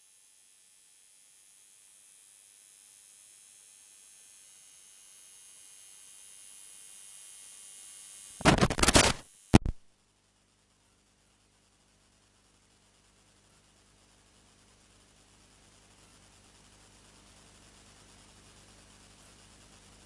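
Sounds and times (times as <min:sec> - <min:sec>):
crackling static bursts: 0:08.4 - 0:09.9
faint electrical hiss: 0:08.4 - 0:09.9.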